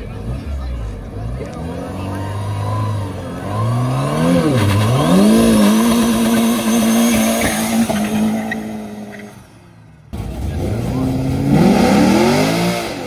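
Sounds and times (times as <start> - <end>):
car engine revving: 0.0 - 13.0.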